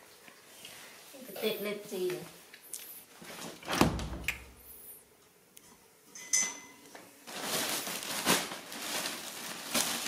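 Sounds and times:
sharp clink with ring: 0:06.2 - 0:06.8
rustling handling noise: 0:06.9 - 0:10.0.

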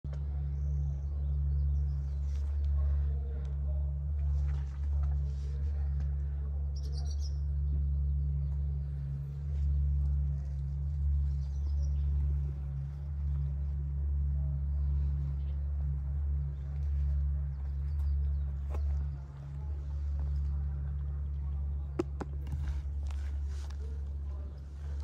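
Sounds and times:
low hum: 0:00.0 - 0:25.0
faint bird chirps: 0:06.6 - 0:09.2.

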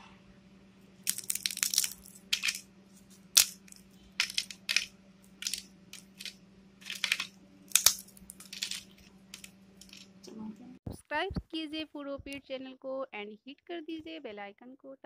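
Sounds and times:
potato chips snapping and crumbling: 0:01.0 - 0:02.6, 0:03.2 - 0:10.0.

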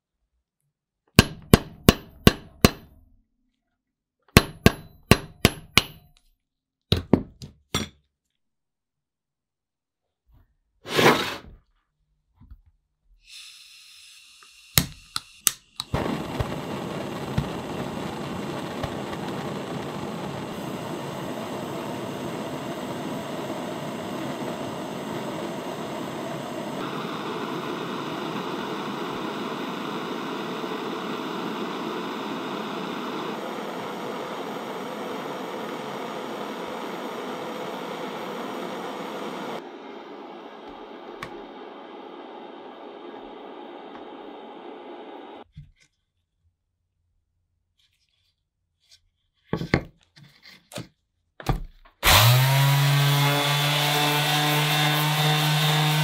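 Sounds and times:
hammer striking steel rod: 0:01.2 - 0:03.1, 0:04.3 - 0:06.2
power tool blowing noise: 0:13.3 - 0:45.4, 0:52.0 - 0:56.0.

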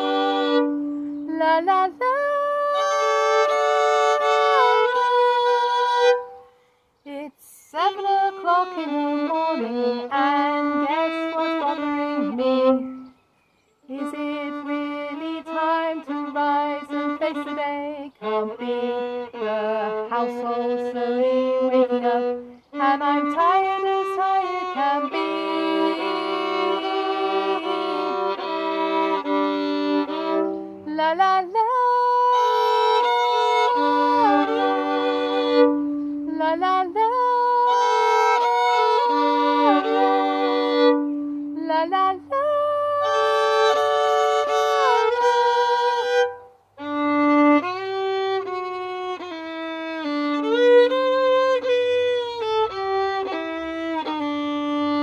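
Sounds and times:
solo violin bowed melody: 0:00.0 - 0:55.0.

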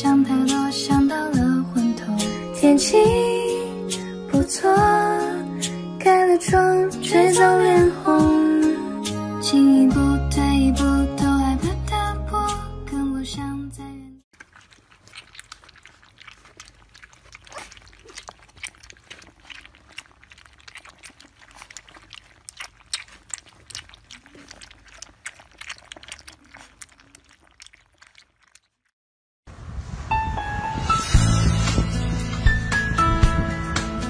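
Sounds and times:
puppies lapping from a dish: 0:14.3 - 0:28.9.

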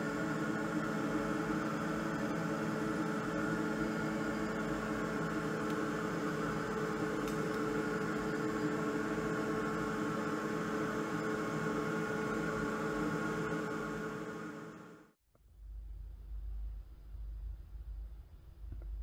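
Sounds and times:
fans whirring hum: 0:00.0 - 0:15.1.

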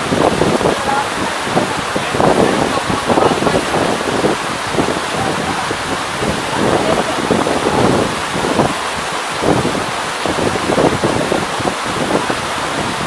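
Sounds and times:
water falling over rock: 0:00.0 - 0:13.0
wind buffeting microphone: 0:00.0 - 0:13.0.

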